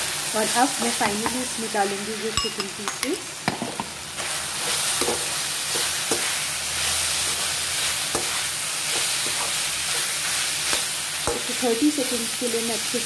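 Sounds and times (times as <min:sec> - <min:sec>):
food sizzling in a hot pan: 0:00.0 - 0:13.0
metal spatula knocking on pan: 0:01.0 - 0:01.5, 0:02.4 - 0:03.6.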